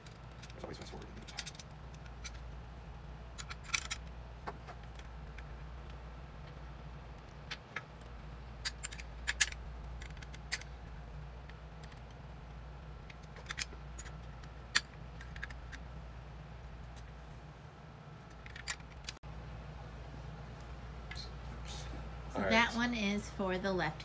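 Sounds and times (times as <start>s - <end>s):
low steady hum: 0.0s - 24.0s
metal hardware clicking: 8.6s - 10.7s.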